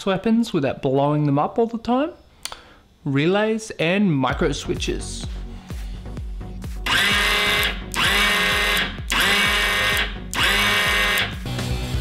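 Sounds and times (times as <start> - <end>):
electric motor whining: 6.8 - 11.6.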